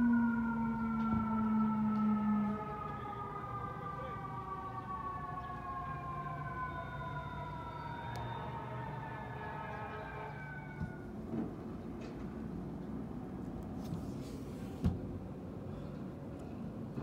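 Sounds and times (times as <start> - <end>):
fire truck siren wailing: 0.0 - 11.2
street traffic hum: 0.0 - 17.0.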